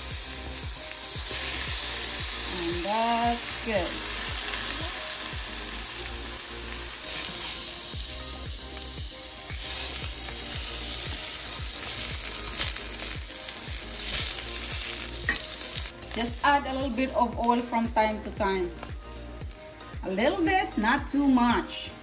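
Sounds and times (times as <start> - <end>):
eggplant sizzling in oil: 0.0 - 20.4.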